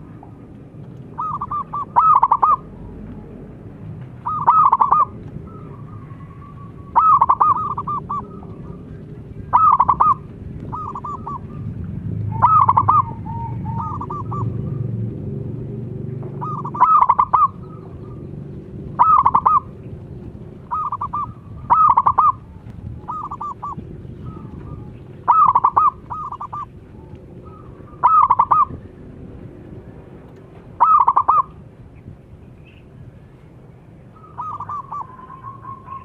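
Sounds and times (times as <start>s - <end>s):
low background rumble: 0.0s - 36.0s
dove cooing: 1.0s - 3.3s, 4.1s - 15.0s, 16.2s - 29.0s, 30.7s - 31.6s, 34.1s - 36.0s.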